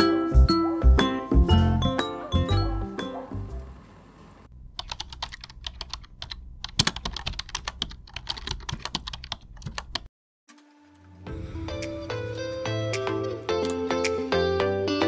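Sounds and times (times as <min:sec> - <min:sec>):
background music: 0:00.0 - 0:03.7, 0:10.6 - 0:15.0.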